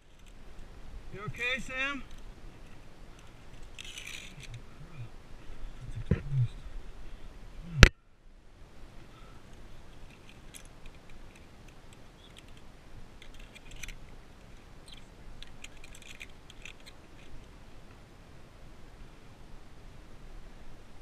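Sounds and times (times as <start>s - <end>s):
carabiners clinking on steel cable: 1.4s - 5.0s, 9.9s - 17.5s.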